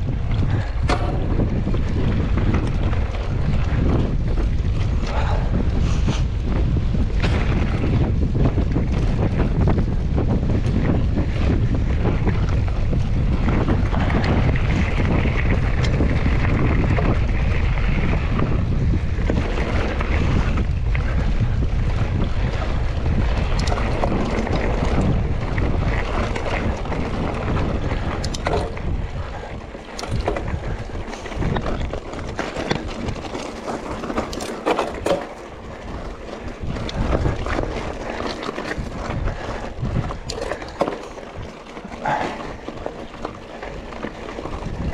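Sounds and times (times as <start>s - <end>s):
bike rattling over rough trail: 0.0s - 44.9s
wind buffeting microphone: 0.0s - 44.9s.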